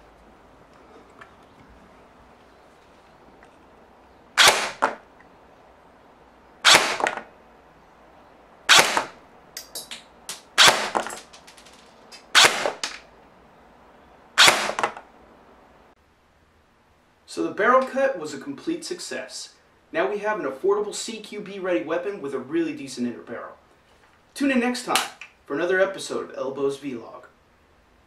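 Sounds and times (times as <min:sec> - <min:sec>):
airsoft gun shots: 0:04.4 - 0:05.0, 0:06.6 - 0:07.3, 0:08.7 - 0:09.2, 0:10.4 - 0:11.7, 0:12.3 - 0:13.0, 0:14.4 - 0:15.0.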